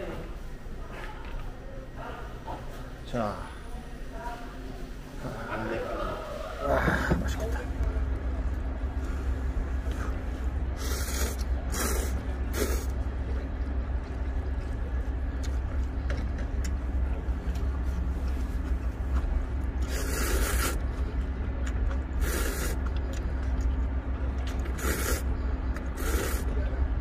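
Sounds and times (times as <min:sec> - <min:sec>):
steady low rumble: 0:00.0 - 0:27.0
noodles being slurped: 0:10.8 - 0:13.0, 0:19.8 - 0:20.8, 0:22.1 - 0:23.3, 0:24.5 - 0:26.5.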